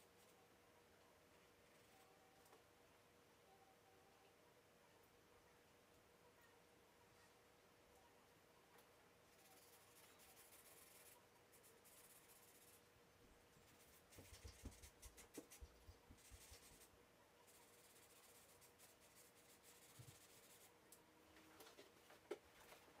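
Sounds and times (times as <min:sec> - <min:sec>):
faint steady hum: 0:00.0 - 0:23.0
charcoal scratching on paper: 0:09.3 - 0:12.8, 0:13.6 - 0:20.8.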